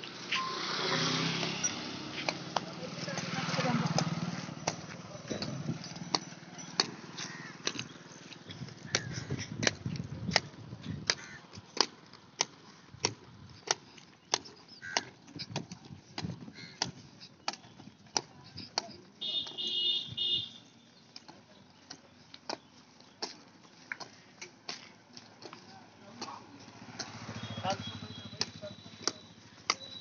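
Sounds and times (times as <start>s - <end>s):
footsteps on asphalt: 0.0s - 30.0s
high ringing tone: 0.3s - 1.8s.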